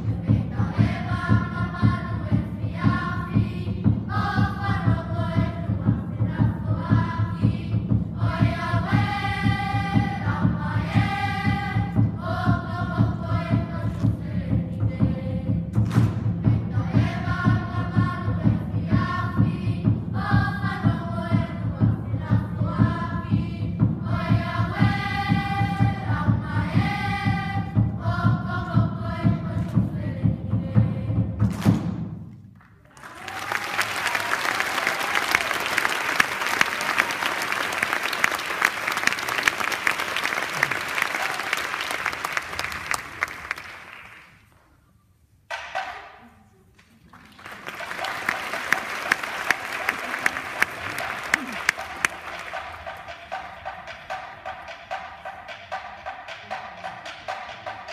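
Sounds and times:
group of voices singing: 0.0s - 15.8s, 16.4s - 31.4s
audience applauding: 32.8s - 44.4s, 47.1s - 53.0s.

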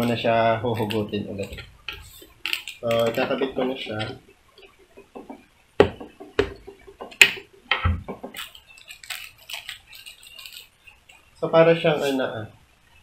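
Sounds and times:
helmet knocking on wooden desk: 5.0s - 8.4s.

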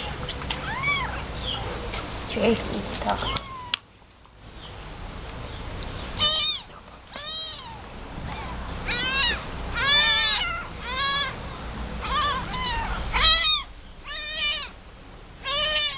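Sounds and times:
kittens mewing: 0.0s - 1.3s, 3.0s - 3.8s, 6.1s - 14.8s, 15.4s - 15.9s.

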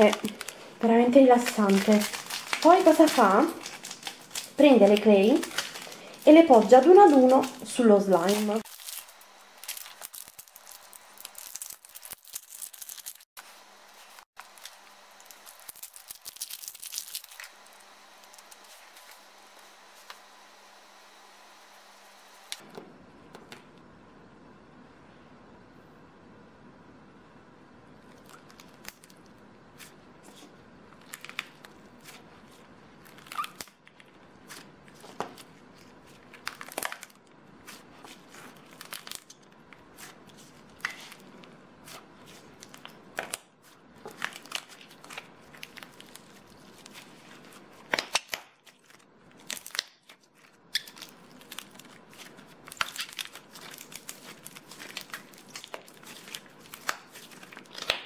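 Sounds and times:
slime kneaded by hand: 0.0s - 13.3s, 28.0s - 58.0s.

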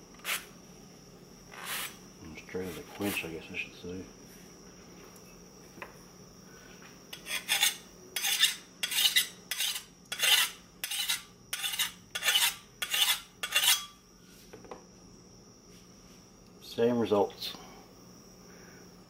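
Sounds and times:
file scraping knife blade: 7.1s - 14.0s.

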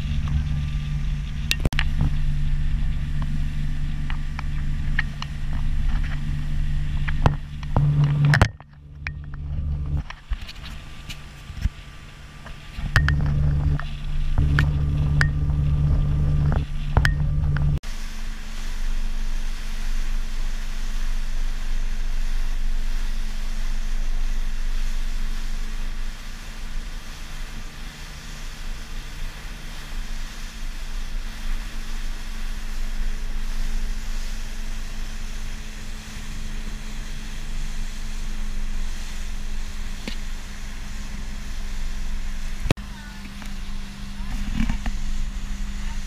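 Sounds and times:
wind buffeting microphone: 0.0s - 17.8s
boat engine drone: 0.0s - 46.0s.

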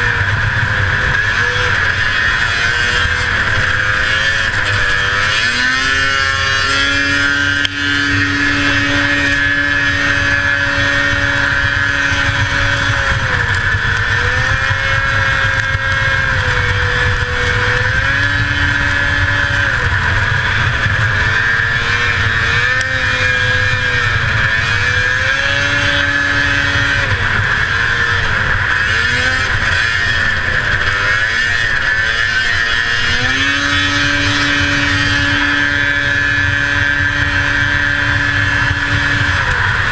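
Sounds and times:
steady high whine: 0.0s - 39.9s
two-stroke engine running hard: 0.0s - 39.9s.

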